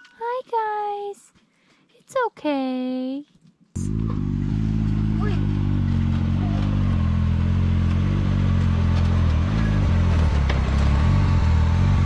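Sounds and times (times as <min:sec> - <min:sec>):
engine running: 0:03.8 - 0:12.0.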